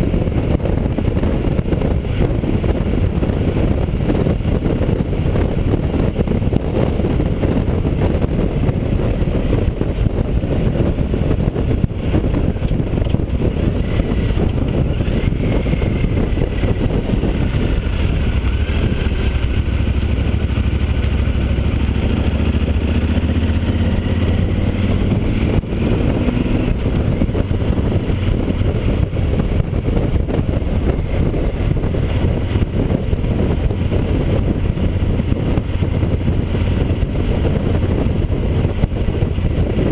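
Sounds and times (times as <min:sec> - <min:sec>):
motorcycle engine running: 0:00.0 - 0:39.9
wind rushing on microphone: 0:00.0 - 0:39.9.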